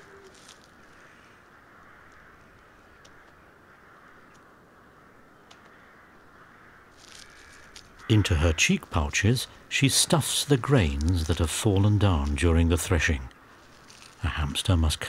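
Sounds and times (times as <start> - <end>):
small scattered ticks: 0.0 - 4.5, 5.4 - 9.0, 13.5 - 14.5.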